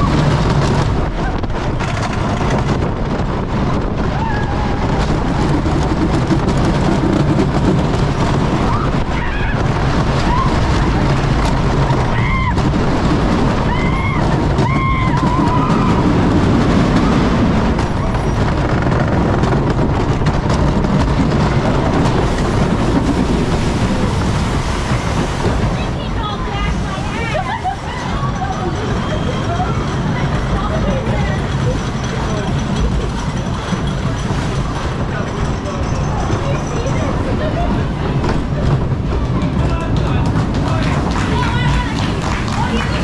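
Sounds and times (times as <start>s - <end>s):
roller coaster wheels rumbling: 0.0s - 43.0s
riders yelling: 13.6s - 16.3s, 40.7s - 43.0s.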